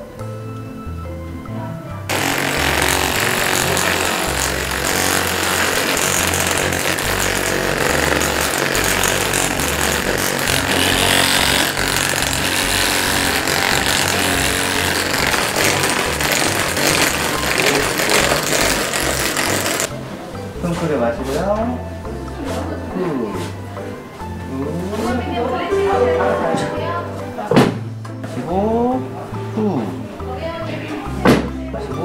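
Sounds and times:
massage gun buzzing: 0:02.1 - 0:19.9.

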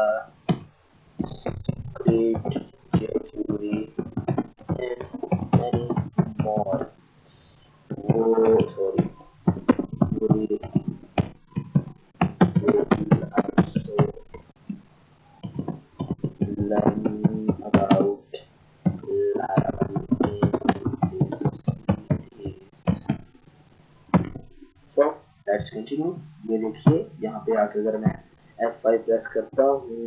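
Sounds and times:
keyboard typing: 0:00.5 - 0:14.8, 0:15.4 - 0:23.4.

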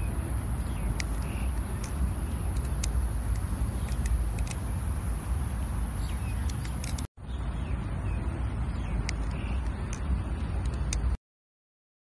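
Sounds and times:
distant traffic rumble: 0:00.0 - 0:11.2
butterfly knife clicking: 0:00.7 - 0:04.7, 0:06.4 - 0:07.1.

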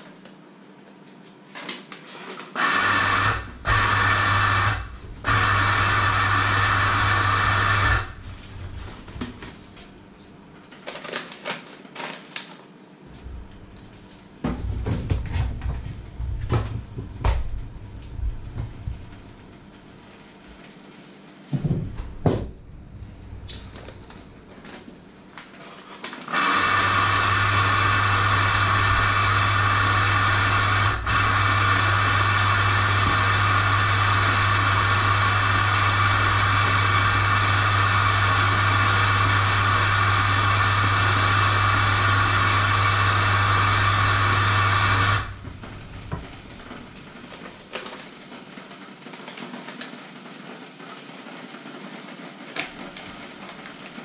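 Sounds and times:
low mains hum: 0:00.0 - 0:02.6, 0:03.3 - 0:26.3, 0:45.2 - 0:54.0
kitchen appliance motor running: 0:02.6 - 0:09.5, 0:26.1 - 0:46.9.

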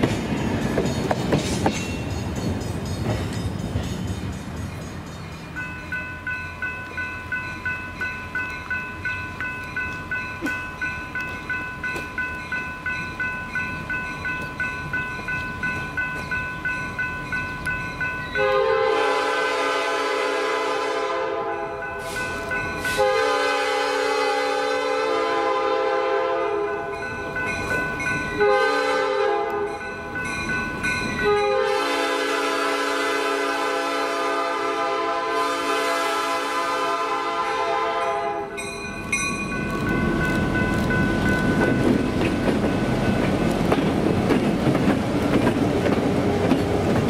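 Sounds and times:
crossing warning bell ringing: 0:00.0 - 0:43.7
diesel locomotive rumble: 0:00.0 - 0:47.0
locomotive air horn blasts: 0:18.4 - 0:22.2, 0:22.9 - 0:26.9, 0:28.4 - 0:29.7, 0:31.2 - 0:38.6.

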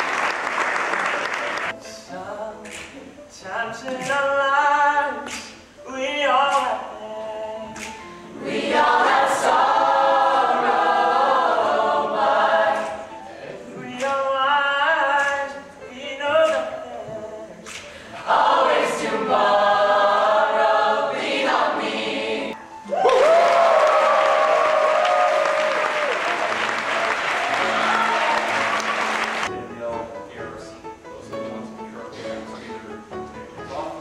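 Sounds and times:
a cappella group singing: 0:01.9 - 0:22.6.

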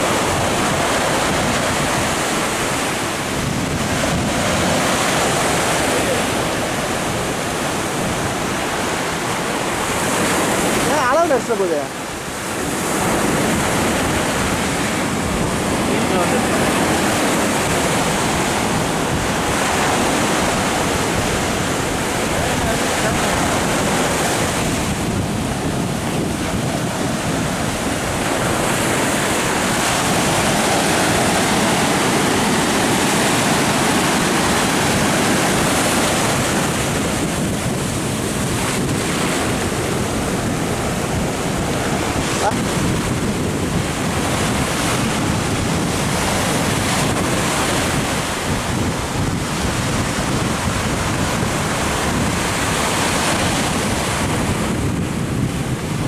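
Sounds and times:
surf breaking on shore: 0:00.0 - 0:56.0
wind buffeting microphone: 0:00.0 - 0:56.0.

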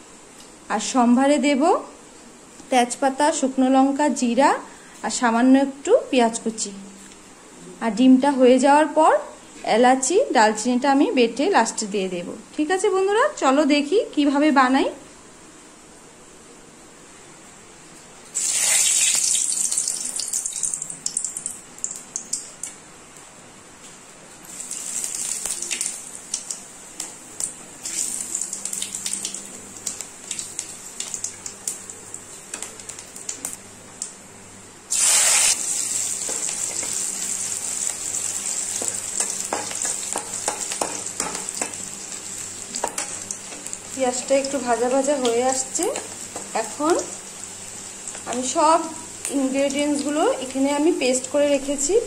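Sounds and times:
spices and onion sizzling in oil: 0:18.0 - 0:52.0.

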